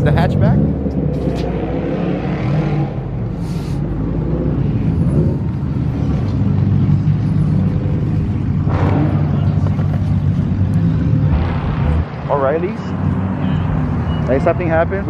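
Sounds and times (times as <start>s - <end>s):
car engine running: 2.9s - 14.2s.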